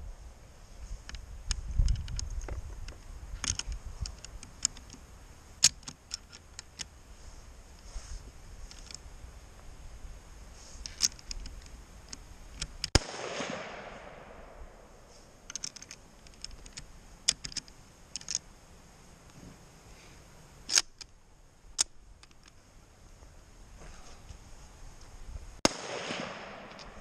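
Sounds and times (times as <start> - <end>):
rifle bolt metallic clicks: 1.1 - 5.0, 5.6 - 6.9, 10.8 - 13.9, 15.4 - 18.4, 20.7 - 21.1, 25.7 - 27.0
sharp cracks: 10.8 - 18.4, 25.6 - 27.0
gunshot with echo: 13.0 - 14.6, 25.6 - 26.9.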